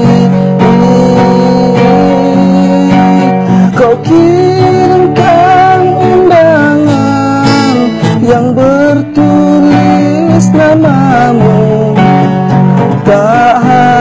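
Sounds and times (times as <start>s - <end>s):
guitar accompaniment: 0.0s - 14.0s
person singing: 0.0s - 14.0s.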